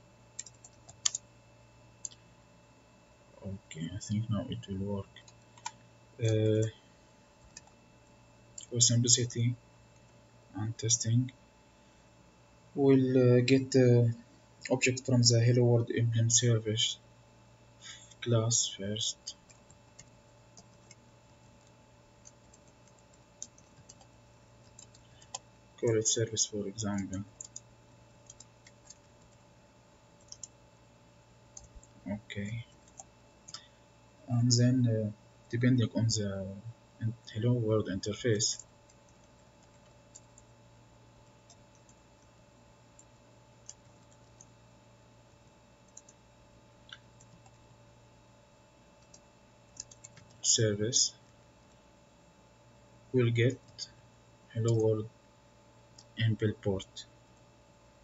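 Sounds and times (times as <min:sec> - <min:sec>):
faint steady hum: 0:00.0 - 0:58.0
computer keyboard keystrokes: 0:00.4 - 0:01.2, 0:07.4 - 0:07.8, 0:21.6 - 0:25.4, 0:30.2 - 0:30.5, 0:45.9 - 0:46.2, 0:49.0 - 0:50.4.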